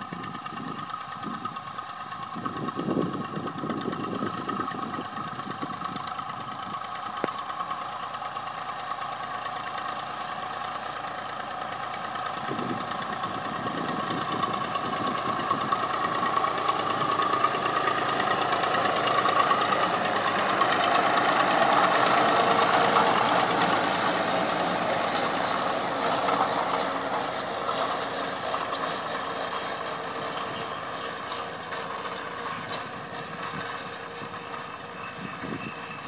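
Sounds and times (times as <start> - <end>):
tractor diesel engine running: 0.0 - 36.0.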